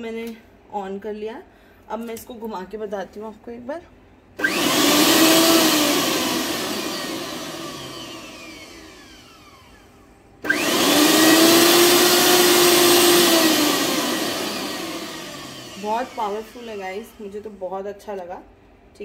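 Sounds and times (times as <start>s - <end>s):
mixer grinder motor spinning: 4.4s - 17.9s.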